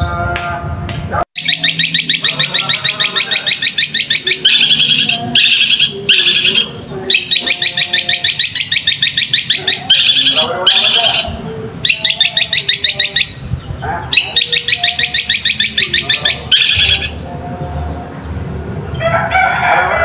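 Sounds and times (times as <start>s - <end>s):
bird buzzy trills: 1.4s - 13.4s, 14.1s - 17.2s
bird singing chattering notes: 1.4s - 17.2s.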